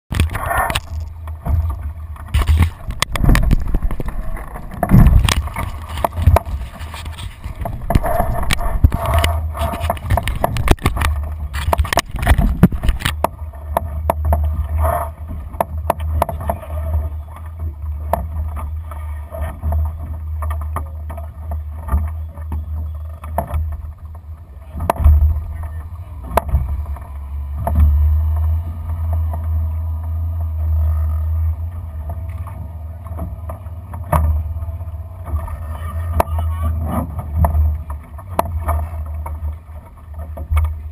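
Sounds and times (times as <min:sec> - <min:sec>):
wind buffeting microphone: 0:00.1 - 0:13.2
knocks and clicks of boat fittings: 0:00.1 - 0:31.4, 0:32.0 - 0:40.9
water washing along hull: 0:00.1 - 0:40.9.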